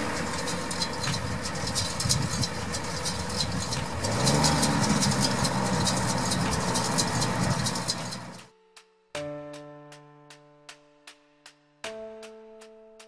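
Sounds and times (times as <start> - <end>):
machinery clicking rattle: 0.0 - 8.5
tractor diesel engine: 0.0 - 8.5.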